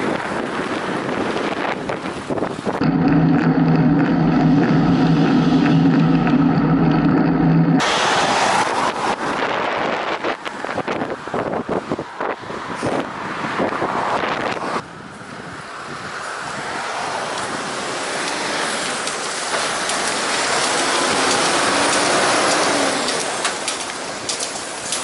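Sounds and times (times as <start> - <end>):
wind buffeting microphone: 0.0 - 7.8
truck passing close: 2.7 - 9.8.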